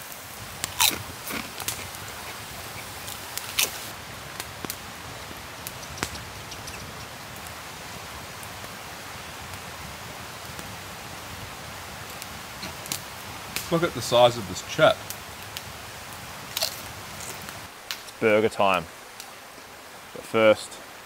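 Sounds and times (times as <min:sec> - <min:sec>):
campfire crackling: 0:00.0 - 0:21.0
steady hiss: 0:00.0 - 0:21.0
person crunching crisps: 0:00.7 - 0:02.4.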